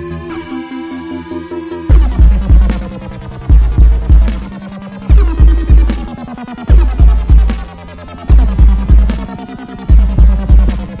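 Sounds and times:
electronic dance music: 0.0 - 11.0
steady synth tones: 0.0 - 11.0
deep bass hits: 1.9 - 6.1.

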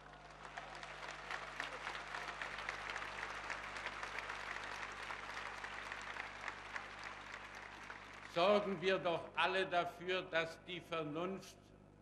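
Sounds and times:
large crowd applauding: 0.0 - 9.1.

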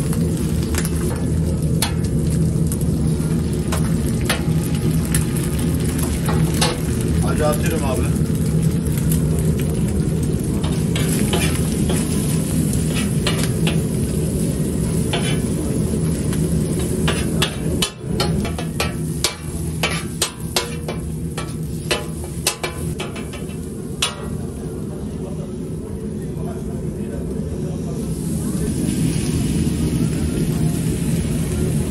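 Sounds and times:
food sizzling on griddle: 0.0 - 25.2, 27.7 - 31.9
steady low hum: 0.0 - 31.9
metal spatula clacking on griddle: 10.6 - 12.2, 16.8 - 24.4.

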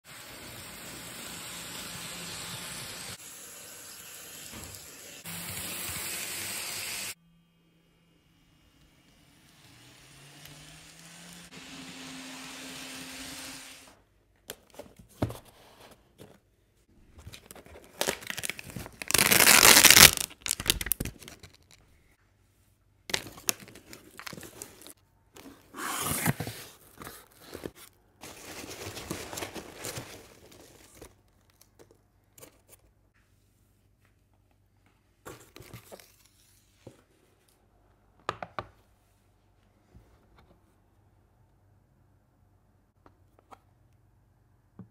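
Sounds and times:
packing peanuts rustling: 17.2 - 21.8, 23.1 - 25.0, 28.2 - 31.9
cardboard box tearing: 17.9 - 21.0.

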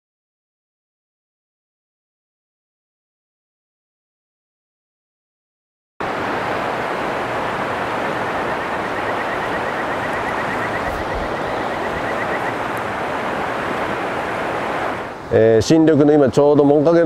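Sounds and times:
river rushing over rocks: 6.0 - 15.4
rapid high ticking trill: 7.8 - 12.8.

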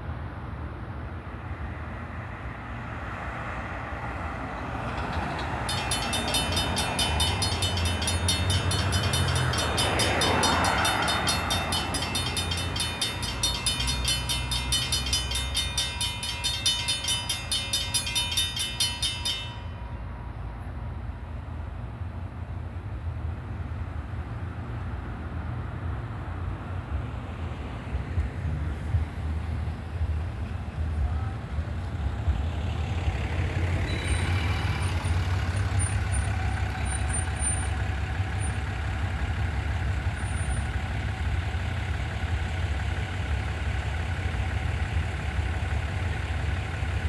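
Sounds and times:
cars passing: 0.0 - 47.0
railroad crossing bell ringing: 4.3 - 21.9, 32.9 - 47.0.

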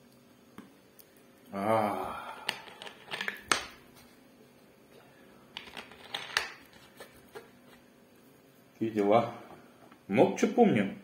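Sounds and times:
person humming: 1.5 - 2.5.

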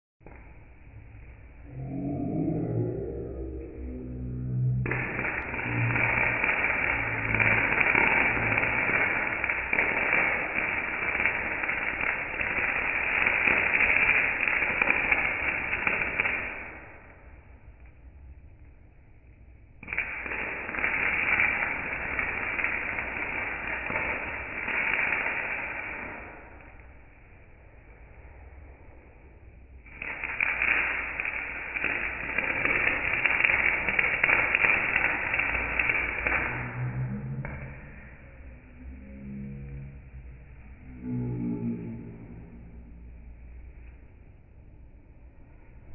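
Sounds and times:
electric arc welding crackling: 4.4 - 17.3, 19.8 - 27.4, 29.8 - 41.2.

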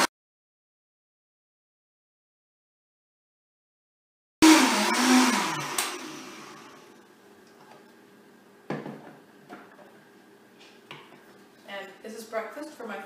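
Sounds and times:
blender click: 4.4 - 6.7
blender motor winding down: 4.4 - 7.0.

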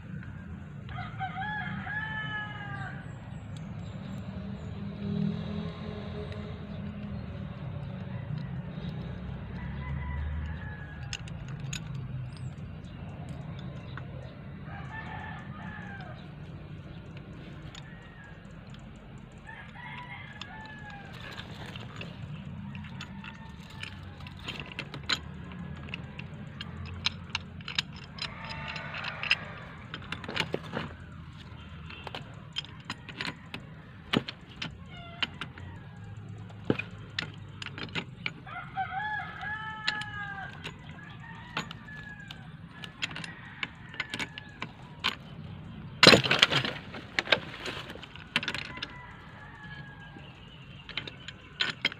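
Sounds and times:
birds calling: 0.0 - 51.9
pipe fittings clicking and knocking: 16.8 - 38.5
loud metal clatter: 45.9 - 51.9.

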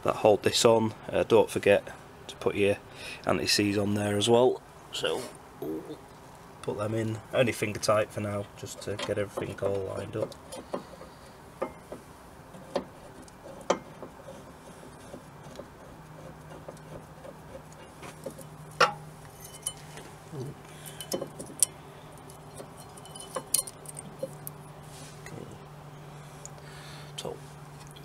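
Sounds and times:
metal clicks and clinks of tools: 20.9 - 24.3.

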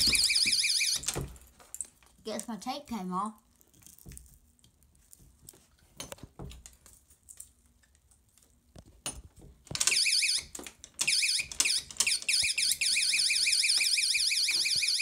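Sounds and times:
warbling alarm siren: 0.0 - 1.1, 9.8 - 15.0.

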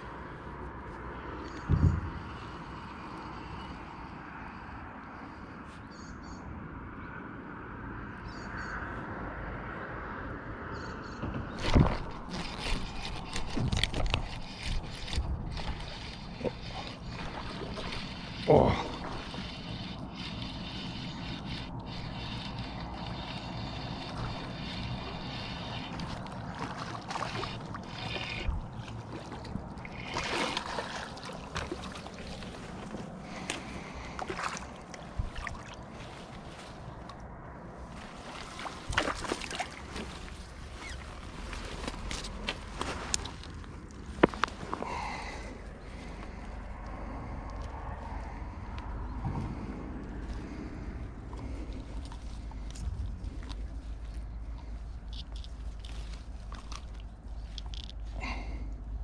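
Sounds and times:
fish splashing: 12.1 - 37.2, 38.1 - 42.4
fishing reel cranking: 12.2 - 28.6.

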